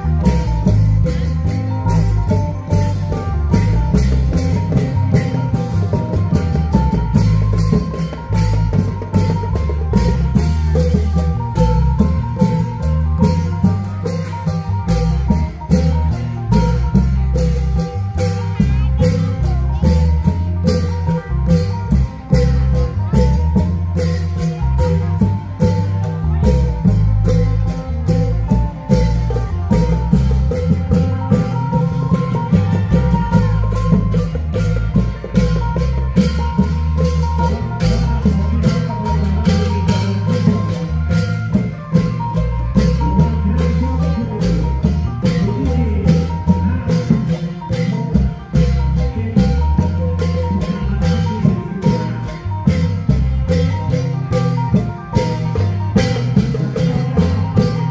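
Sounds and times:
plucked-string melody: 0:00.0 - 0:57.9
steady drum beat: 0:00.0 - 0:57.9.

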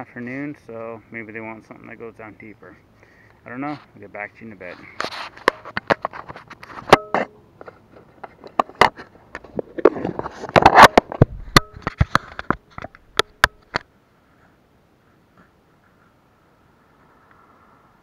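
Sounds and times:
rubbing on plastic housing: 0:04.7 - 0:06.9
camera housing clicks and knocks: 0:10.5 - 0:13.8.

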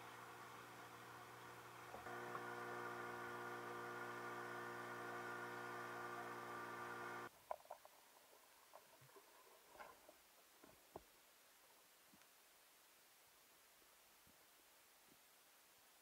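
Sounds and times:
outboard motor droning: 0:00.0 - 0:07.3.

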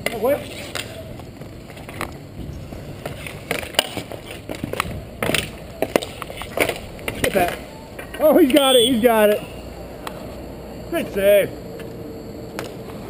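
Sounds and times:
hockey sticks and puck clacking: 0:00.0 - 0:02.2, 0:03.0 - 0:09.4
skate wheels rolling and scraping: 0:00.0 - 0:10.5.

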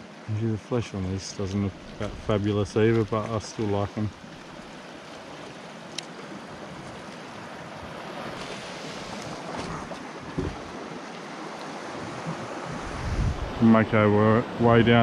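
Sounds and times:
sea surf washing on rocks: 0:00.8 - 0:15.0
wind on microphone: 0:11.9 - 0:15.0.

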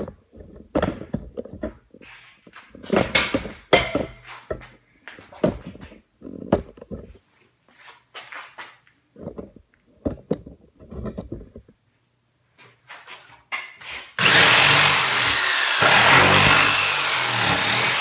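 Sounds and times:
handling knocks and thumps: 0:00.0 - 0:07.3, 0:09.1 - 0:11.8.

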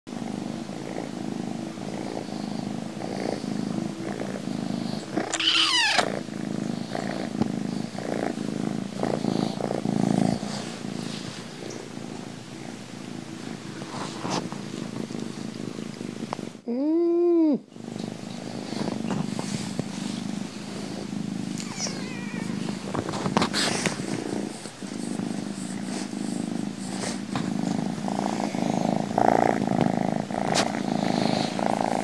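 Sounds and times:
kitten purring: 0:00.1 - 0:32.0
kitten squeak sliding down: 0:05.3 - 0:06.1, 0:21.6 - 0:22.6.

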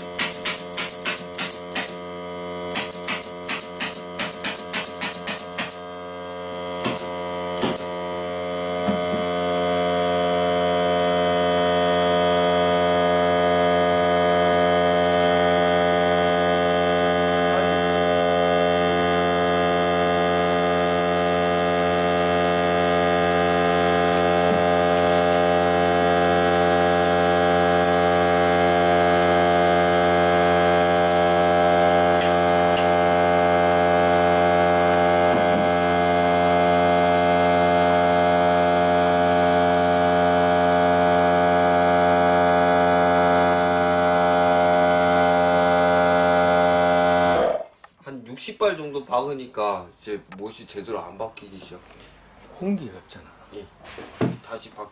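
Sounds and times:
air nailer shots: 0:00.0 - 0:06.0, 0:06.7 - 0:09.9, 0:15.3 - 0:47.8
air compressor motor humming: 0:00.0 - 0:47.8.

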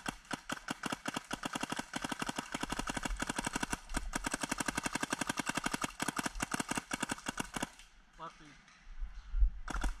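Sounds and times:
paintball marker firing rapidly: 0:00.0 - 0:07.8.

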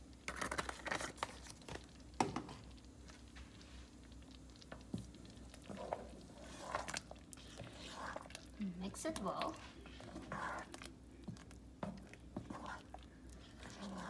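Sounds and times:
spoon stirring thick soup: 0:00.2 - 0:14.0.

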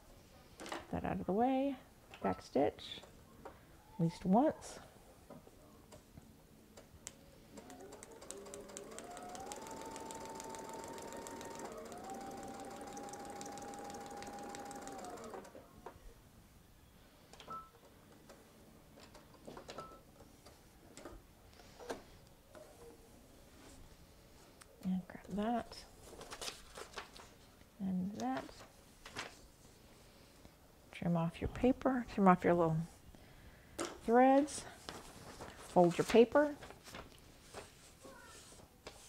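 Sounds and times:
electric sewing machine stitching: 0:07.5 - 0:15.6.

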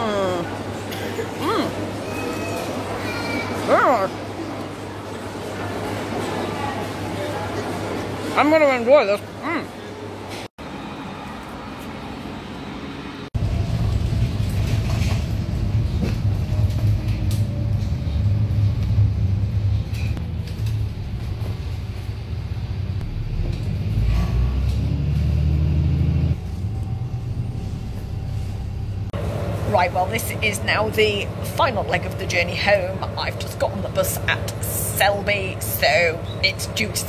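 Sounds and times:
bus engine and road noise: 0:10.0 - 0:37.0.

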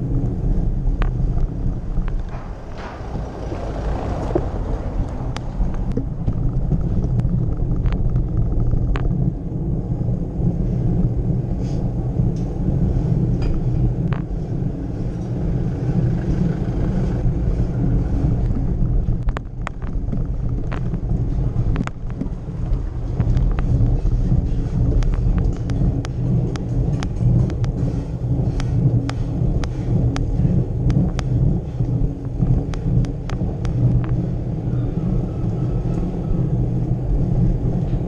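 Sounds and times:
bicycle rolling over cobblestones: 0:00.0 - 0:38.0
sharp clicks and knocks: 0:00.2 - 0:09.3, 0:18.4 - 0:34.2.

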